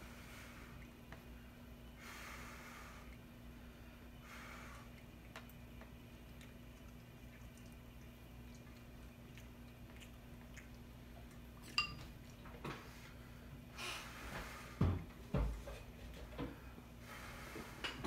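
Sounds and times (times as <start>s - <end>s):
steady low hum: 0.0s - 18.0s
metal fork clinking on bowl: 11.7s - 12.1s.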